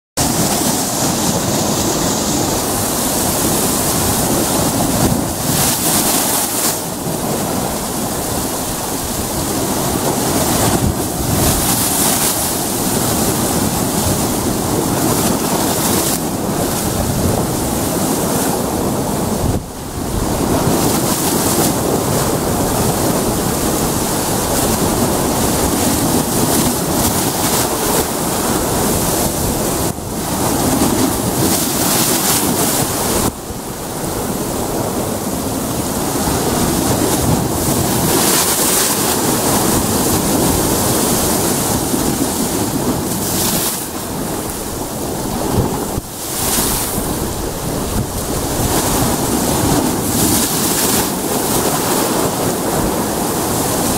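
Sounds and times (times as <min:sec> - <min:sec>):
waves breaking on rocks: 0:00.2 - 0:53.9.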